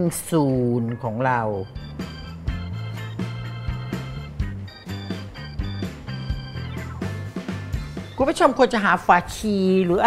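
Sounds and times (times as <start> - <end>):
instrumental music with steady beat: 1.7 - 8.3.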